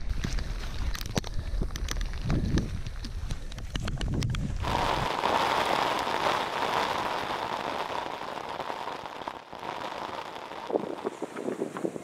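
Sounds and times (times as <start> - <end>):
wind buffeting microphone: 0.0 - 6.6, 10.2 - 12.0
heavy rain hiss: 4.6 - 12.0.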